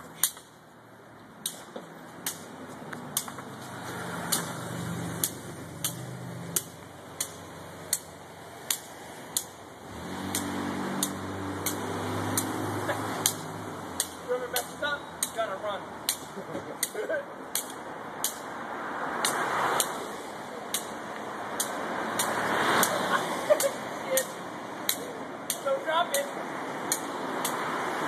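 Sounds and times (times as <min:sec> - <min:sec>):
vehicle engine passing: 0:02.5 - 0:14.9, 0:18.0 - 0:25.4
hands slapping a small ball: 0:13.2 - 0:14.2.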